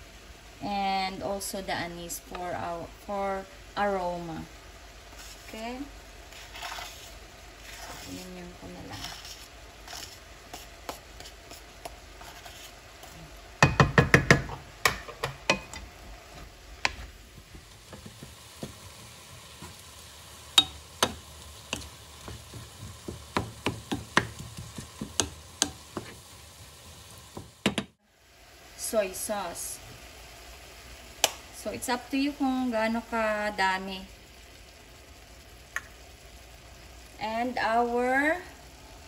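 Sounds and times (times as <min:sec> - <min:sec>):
meat sizzling in a pan: 0:00.0 - 0:39.0
spatula scraping a pan: 0:06.3 - 0:13.2, 0:20.6 - 0:26.3.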